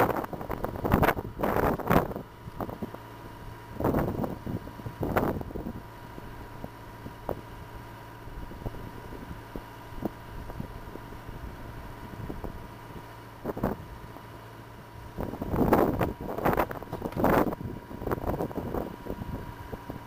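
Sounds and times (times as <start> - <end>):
wind gusts on microphone: 0.0 - 3.0, 3.7 - 5.9, 13.4 - 13.9, 15.1 - 20.0
engine idling: 0.0 - 20.0.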